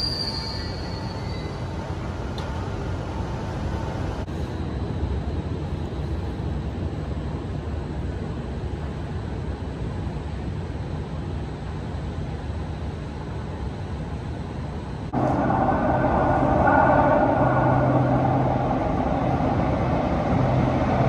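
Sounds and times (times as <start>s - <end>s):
metro train rumbling on rails: 0.0s - 21.0s
low station rumble: 14.3s - 21.0s.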